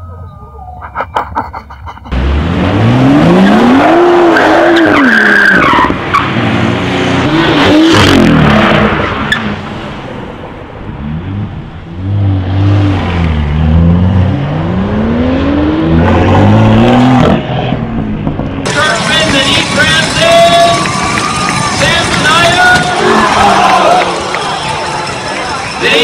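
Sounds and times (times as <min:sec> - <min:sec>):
tyres skidding and squealing: 0:00.0 - 0:10.2, 0:11.0 - 0:26.0
car engine revving hard: 0:02.1 - 0:09.3, 0:11.1 - 0:17.5.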